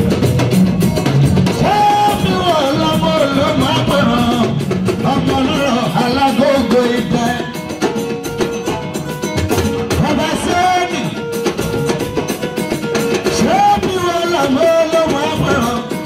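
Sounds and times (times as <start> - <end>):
live music with drums: 0.0 - 16.0
man singing into microphone: 1.5 - 7.6, 13.3 - 16.0.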